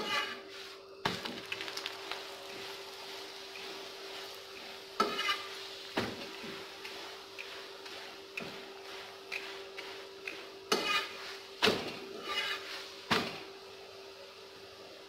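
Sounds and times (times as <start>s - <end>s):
metal spatula clacking on griddle: 5.0s - 5.5s, 9.3s - 12.5s.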